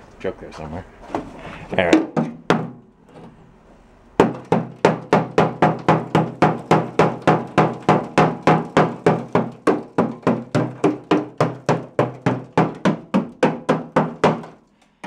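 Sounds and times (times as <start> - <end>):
hammer beating on steel: 4.2 - 14.6.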